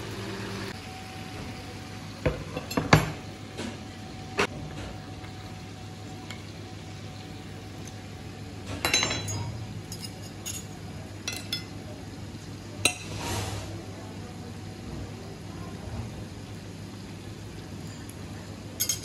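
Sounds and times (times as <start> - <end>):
cutlery scraping plate: 12.9 - 13.7
cutlery clinking on plate: 18.8 - 19.0.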